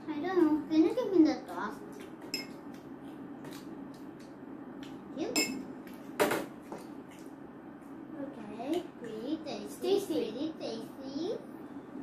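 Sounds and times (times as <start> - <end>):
forks clinking on ceramic plates: 2.3 - 2.6, 5.4 - 5.6.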